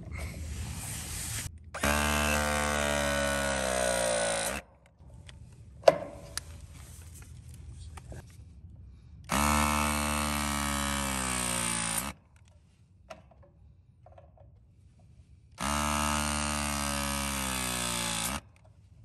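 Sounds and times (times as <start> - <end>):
press tool motor whine: 1.8 - 4.6, 9.3 - 12.1, 15.6 - 18.4.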